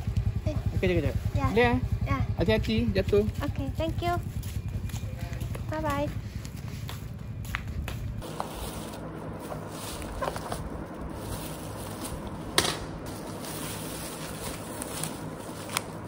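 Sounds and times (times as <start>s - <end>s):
low hum: 0.0s - 16.0s
plastic bag crackle: 8.2s - 12.5s, 13.1s - 16.0s
plastic bags rustling: 8.2s - 16.0s.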